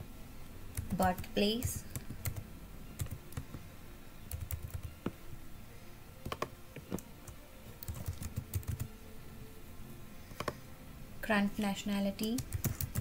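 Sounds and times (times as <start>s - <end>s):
typing on computer keyboard: 3.0s - 3.5s, 4.3s - 4.9s, 6.2s - 6.5s, 7.8s - 8.9s, 12.2s - 13.0s.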